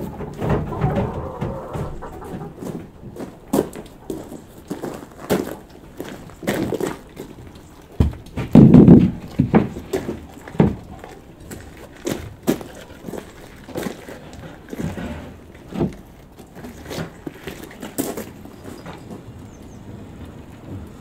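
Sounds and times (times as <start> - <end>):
sheet metal knocks and clanks: 0.0 - 3.0, 8.0 - 11.0
footsteps on gravel: 0.0 - 19.3.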